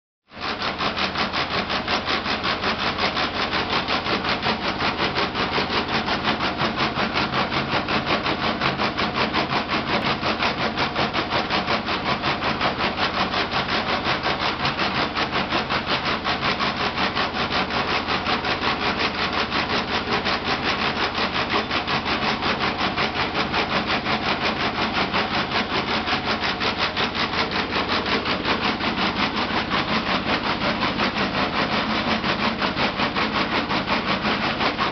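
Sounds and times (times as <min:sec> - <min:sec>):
factory machinery running rhythmically: 0:00.4 - 0:34.9.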